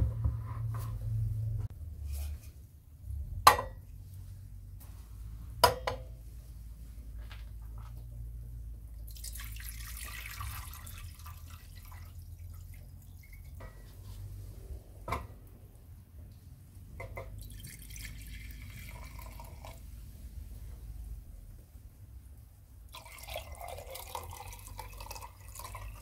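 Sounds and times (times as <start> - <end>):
liquid pouring into a jar: 9.0 - 13.6, 17.3 - 19.8, 22.9 - 26.0
water pouring into a saucepan: 9.1 - 13.6, 17.4 - 19.8, 22.9 - 26.0.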